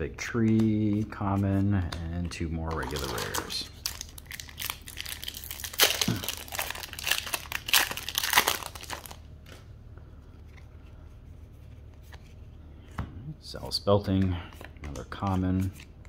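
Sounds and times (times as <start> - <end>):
trading cards being handled: 0.2 - 9.7, 13.7 - 16.0
foil wrapper tearing and crinkling: 2.8 - 9.2.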